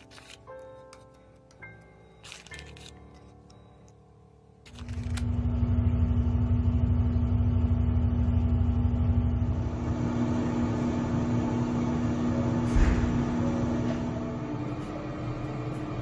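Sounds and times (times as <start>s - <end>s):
air fryer fan hum: 4.7s - 16.0s.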